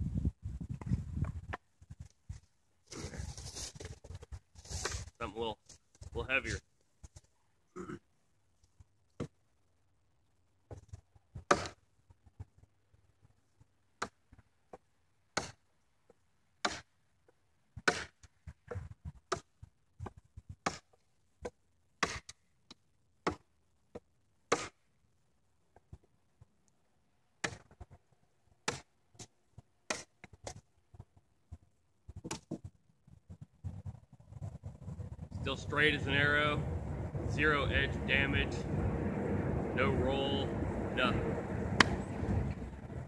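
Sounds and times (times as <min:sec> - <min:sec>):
knife chopping into branch: 0:11.5 - 0:11.8, 0:15.4 - 0:15.6, 0:16.6 - 0:16.9, 0:17.8 - 0:18.3, 0:20.6 - 0:22.4, 0:24.5 - 0:24.8, 0:27.4 - 0:27.7, 0:28.6 - 0:28.9, 0:29.9 - 0:30.6, 0:41.8 - 0:42.0.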